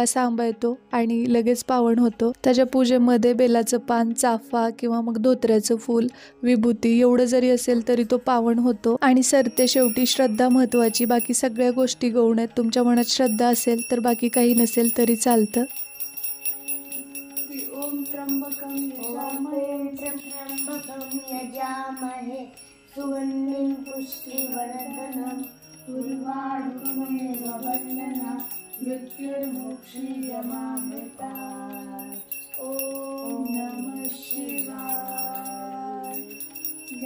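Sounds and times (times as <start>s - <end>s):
small bells ringing: 9.2s - 37.0s.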